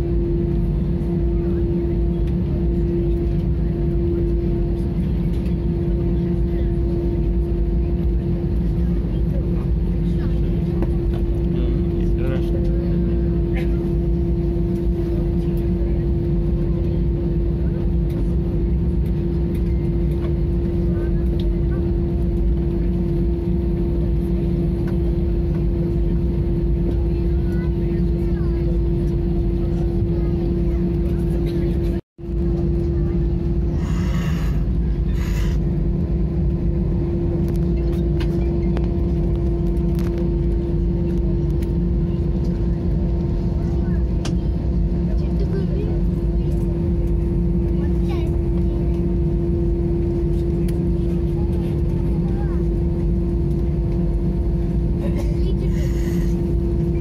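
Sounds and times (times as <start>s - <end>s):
jet engines low rumble: 0.0s - 57.0s.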